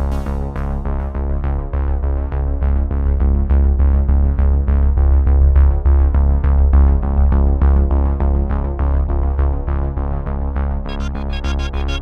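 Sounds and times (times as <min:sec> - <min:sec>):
repeating synthesizer pattern: 0:10.9 - 0:12.0.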